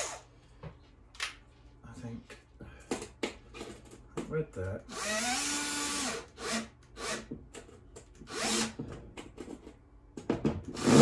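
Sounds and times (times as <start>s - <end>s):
cordless drill driving screws: 8.3s - 8.8s, 10.8s - 11.0s.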